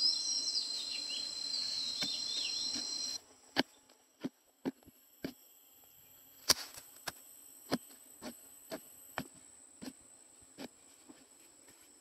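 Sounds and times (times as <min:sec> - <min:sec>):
insects trilling: 0:00.0 - 0:03.3.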